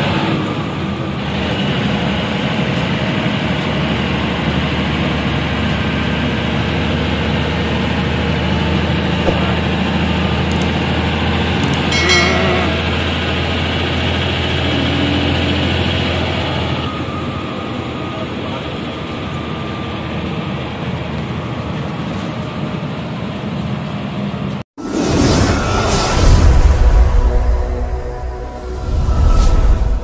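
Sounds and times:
road and tyre noise: 0:00.0 - 0:12.0
bus diesel engine droning: 0:00.0 - 0:24.6
warbling horn blast: 0:11.9 - 0:13.4.

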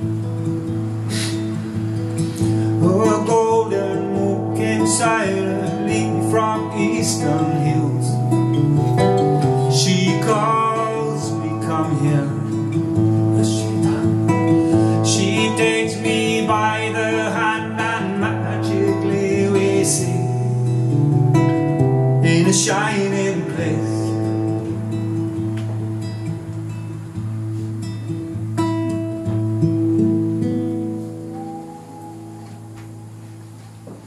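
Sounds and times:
acoustic guitar: 0:00.0 - 0:34.0
man singing slow song: 0:02.5 - 0:21.1, 0:21.8 - 0:24.6.

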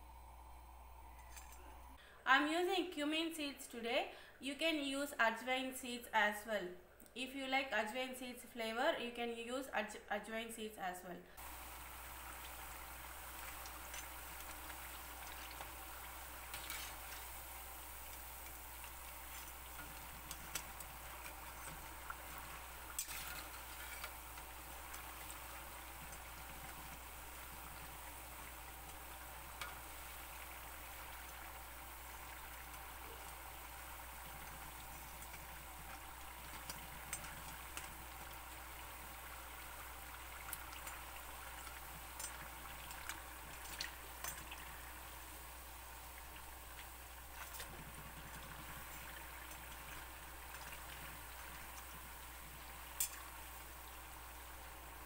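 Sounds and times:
sharp clicks in frying oil: 0:11.4 - 0:44.8, 0:46.2 - 0:54.5
oil sizzling: 0:11.4 - 0:55.0.

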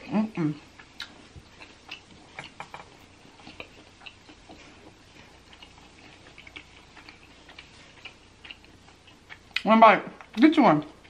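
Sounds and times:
crunchy chewing: 0:00.6 - 0:10.4
wet mouth clicks: 0:00.8 - 0:04.4.

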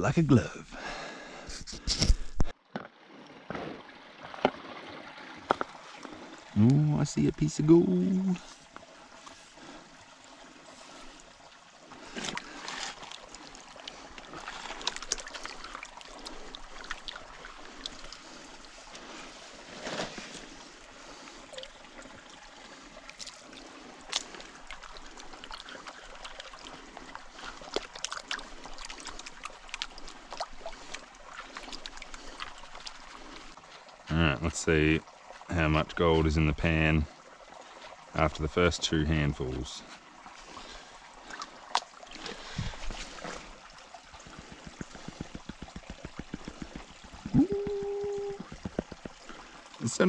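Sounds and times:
water sloshing in a pan: 0:07.6 - 0:34.1, 0:34.9 - 0:50.0.

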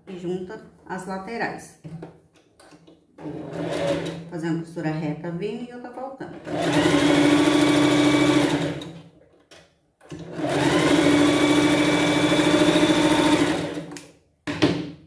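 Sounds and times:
sewing machine stitching: 0:03.2 - 0:04.3, 0:06.3 - 0:09.1, 0:10.0 - 0:14.0.

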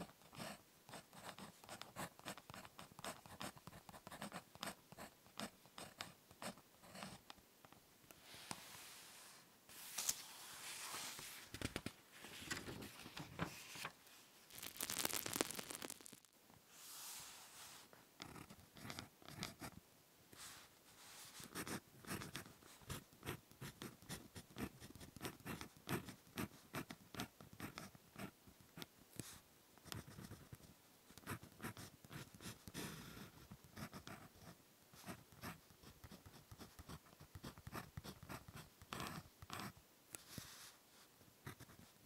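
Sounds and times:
ballpoint pen writing on paper: 0:18.2 - 0:19.7, 0:21.5 - 0:28.3.

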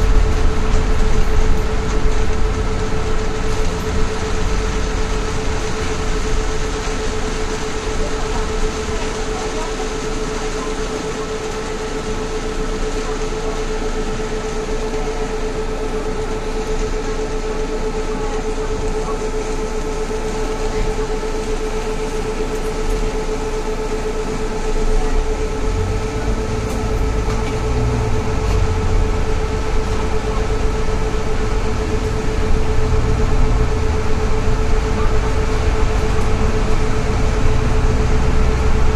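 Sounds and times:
low rumble: 0:00.0 - 0:10.4, 0:19.6 - 0:38.9
constant whine: 0:00.0 - 0:38.9
vehicle cabin drone: 0:00.0 - 0:38.9.

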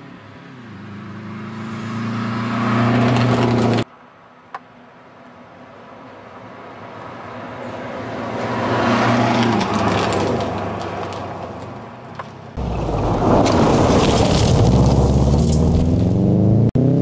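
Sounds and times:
tyres crunching on gravel: 0:09.3 - 0:16.2
gravel spraying: 0:12.6 - 0:16.1
car engine pulling hard: 0:12.6 - 0:17.0.

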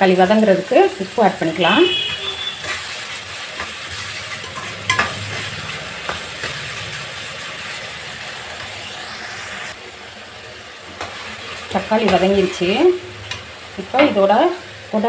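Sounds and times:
vegetables sizzling in oil: 0:00.0 - 0:15.0
metal ladle scraping pan: 0:01.6 - 0:08.8
ladle knocking on pan: 0:04.4 - 0:05.2.

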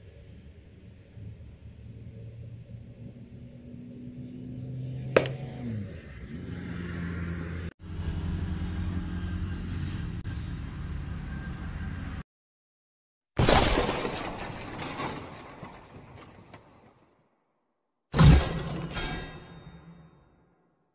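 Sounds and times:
metal filter knocking on wood: 0:05.2 - 0:05.4.

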